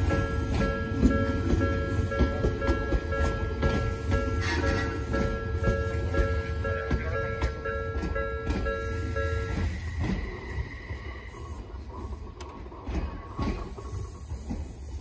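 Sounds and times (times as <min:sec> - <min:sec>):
level-crossing bell dinging: 0:00.0 - 0:10.6
electric train rumbling: 0:00.0 - 0:15.0.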